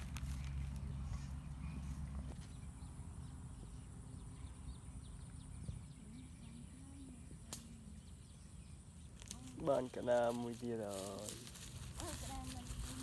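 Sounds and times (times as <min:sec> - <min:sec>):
small birds chirping: 0:00.0 - 0:13.0
wind on microphone: 0:04.7 - 0:07.4.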